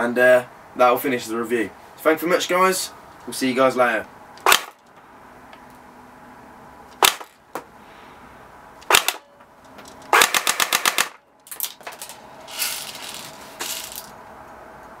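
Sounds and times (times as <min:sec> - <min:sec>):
airsoft gun firing: 0:04.5 - 0:04.8, 0:07.0 - 0:07.3, 0:08.9 - 0:09.2, 0:10.1 - 0:11.2
rustling: 0:11.5 - 0:14.1.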